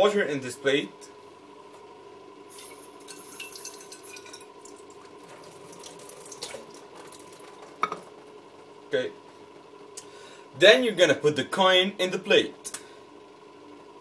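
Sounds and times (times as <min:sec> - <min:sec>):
tap water running onto plate: 0:02.6 - 0:08.0.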